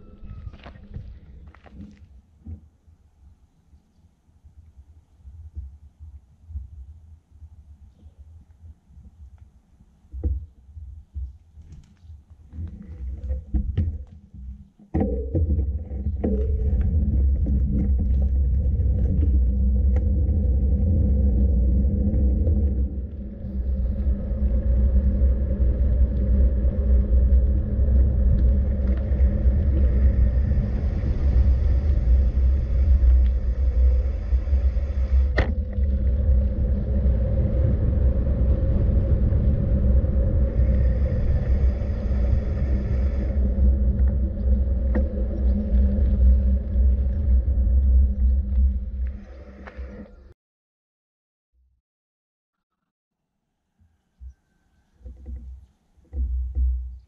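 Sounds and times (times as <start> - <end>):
vehicle and road rumble: 10.1 - 50.1.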